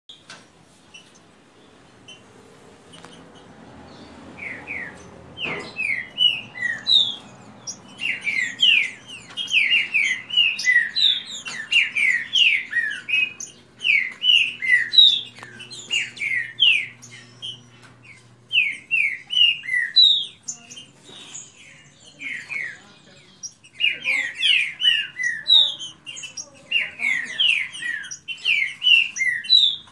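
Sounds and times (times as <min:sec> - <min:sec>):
birds whistling song: 0:00.1 - 0:29.9.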